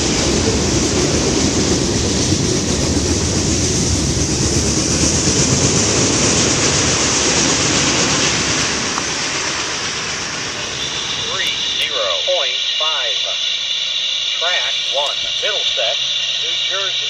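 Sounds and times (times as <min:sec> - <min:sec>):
freight train wheels rumbling on rails: 0:00.0 - 0:13.6.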